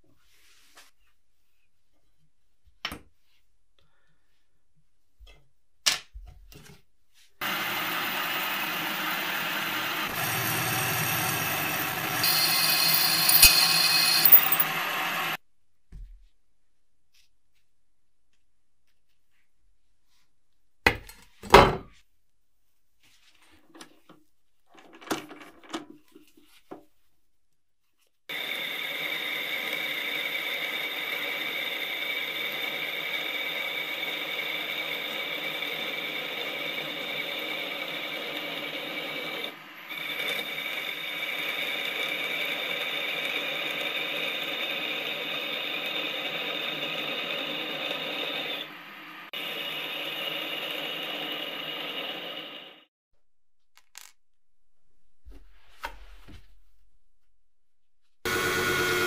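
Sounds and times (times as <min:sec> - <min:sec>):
power tool whining: 0:07.4 - 0:15.4, 0:58.3 - 0:59.0
tools being handled: 0:12.2 - 0:14.7, 0:53.8 - 0:54.2.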